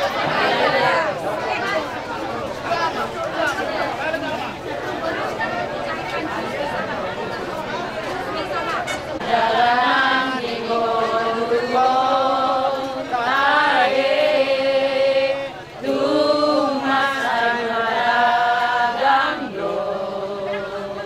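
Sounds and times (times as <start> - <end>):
group of people singing: 0.0 - 1.2, 9.2 - 21.0.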